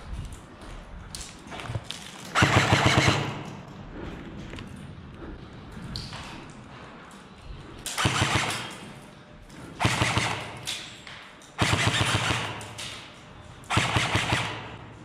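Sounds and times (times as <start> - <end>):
airsoft rifle rapid shots: 2.3 - 3.5, 7.9 - 8.7, 9.8 - 10.7, 11.6 - 12.8, 13.7 - 14.8.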